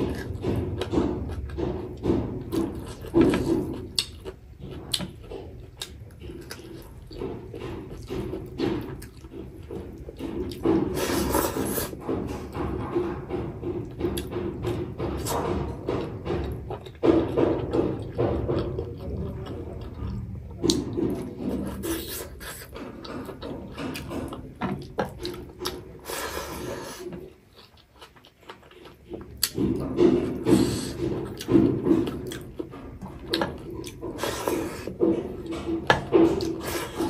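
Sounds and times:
chewing and mouth smacking: 0:02.5 - 0:12.5, 0:17.8 - 0:35.8.

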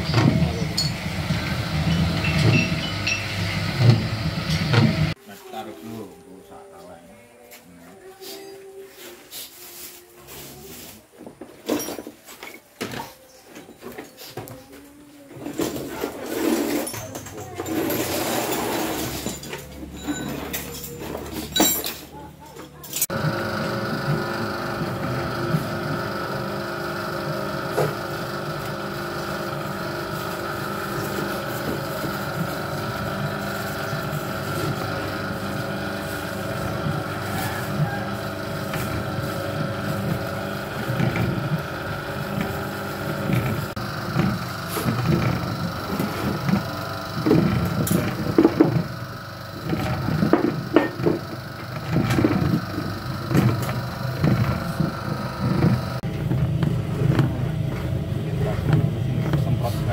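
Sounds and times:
granulator motor whine: 0:23.1 - 0:59.9.

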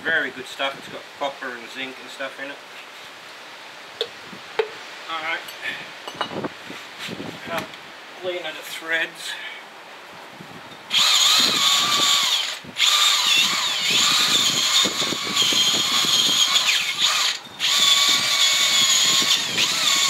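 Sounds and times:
power drill motor whine: 0:10.9 - 0:20.0.

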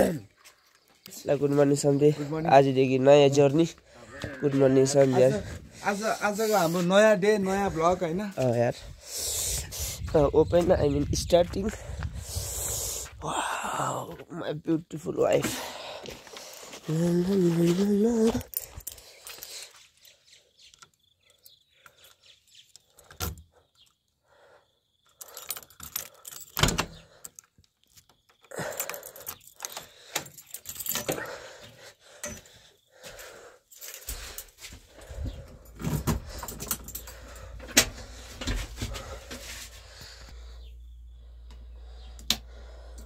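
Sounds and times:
keys jangling in a door lock: 0:18.4 - 0:20.1, 0:25.0 - 0:31.3, 0:33.8 - 0:38.2
door clattering open: 0:26.5 - 0:27.1, 0:35.5 - 0:39.0
low steady hum: 0:36.8 - 0:43.0.

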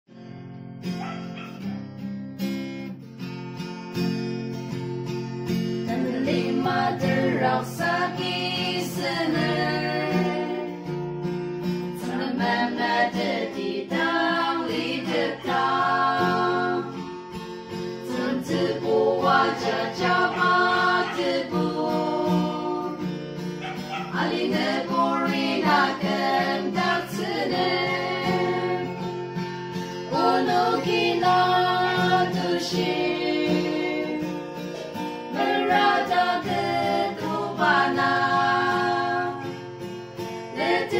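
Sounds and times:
acoustic guitar: 0:00.1 - 0:40.9
women singing together: 0:05.8 - 0:10.9, 0:12.0 - 0:17.2, 0:18.0 - 0:39.6, 0:40.5 - 0:40.9.

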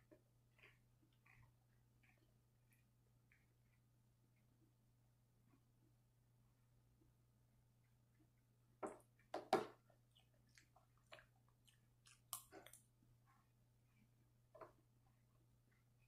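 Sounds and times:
person chewing: 0:00.0 - 0:03.8, 0:09.2 - 0:14.1.

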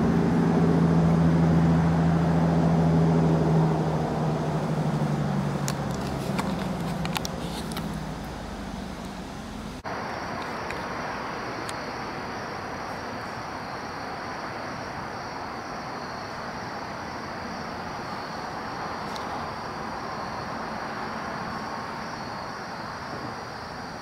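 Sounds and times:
insects droning: 0:00.0 - 0:24.0
handling noise clicks and rumble: 0:04.6 - 0:09.5.

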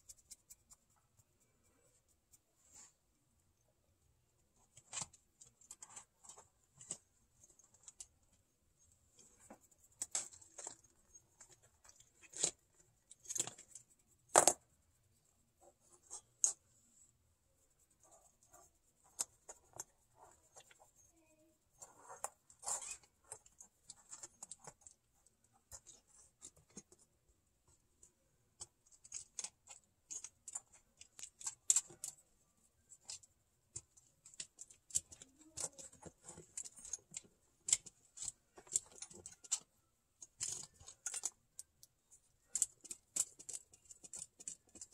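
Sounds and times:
kitten paws scratching and pattering: 0:00.0 - 0:03.0, 0:04.6 - 0:17.0, 0:17.6 - 0:27.9, 0:28.5 - 0:44.9.

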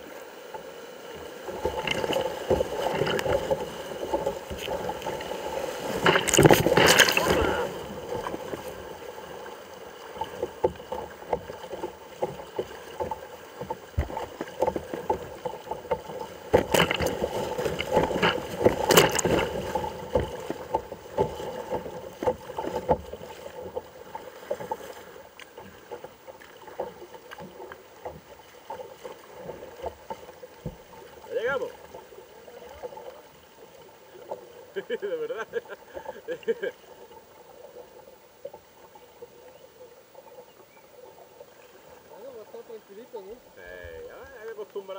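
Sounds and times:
water slapping kayak hull: 0:00.0 - 0:44.9.

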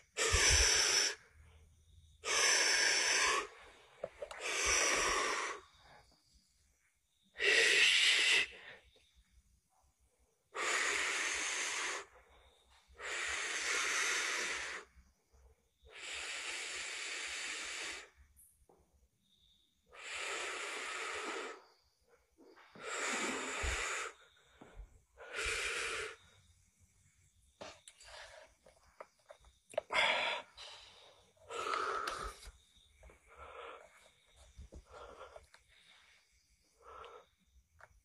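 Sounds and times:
heavy breathing: 0:00.0 - 0:06.2, 0:19.9 - 0:37.9.

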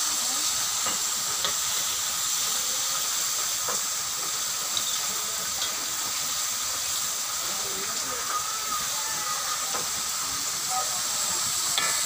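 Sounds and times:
food sizzling in hot oil: 0:00.0 - 0:12.0
metal tongs clicking on wok: 0:04.7 - 0:05.8, 0:11.7 - 0:12.0.

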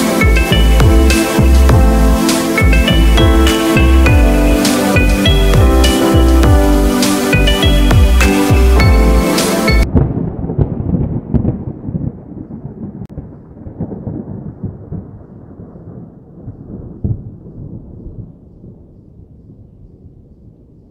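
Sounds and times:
background music: 0:00.0 - 0:09.9
thunder-like rumble with cracks: 0:09.8 - 0:20.9.

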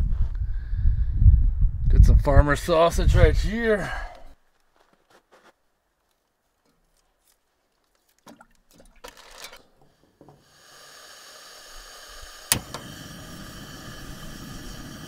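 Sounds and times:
gas hissing from valve: 0:10.2 - 0:15.0
gas burner rumbling: 0:10.4 - 0:15.0
sharp igniter click: 0:12.4 - 0:14.5.

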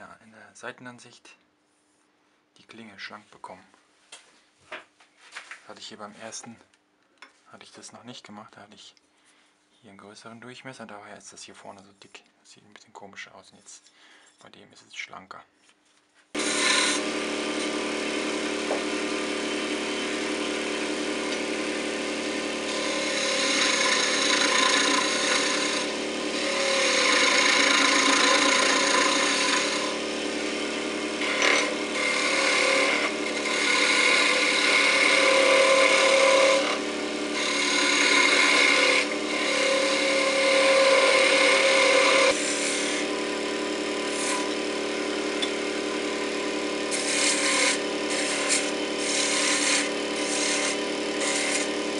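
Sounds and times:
chisel scraping spinning wood: 0:16.3 - 0:51.9
lathe motor hum: 0:16.4 - 0:51.9.

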